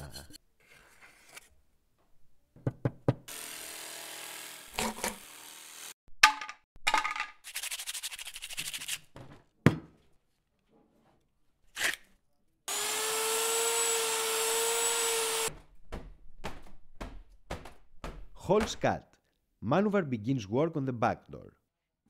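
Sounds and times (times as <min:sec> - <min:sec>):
angle grinder sanding plywood: 0:03.3 - 0:05.9, 0:12.7 - 0:15.5.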